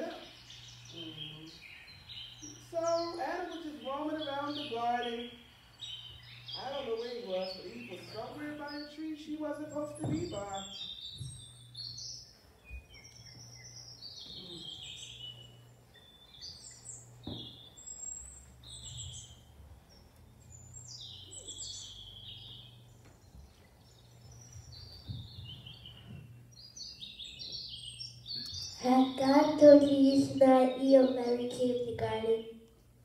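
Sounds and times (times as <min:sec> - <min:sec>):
bird chirps and trills: 0:00.0 - 0:32.7
low steady hum: 0:00.0 - 0:33.0.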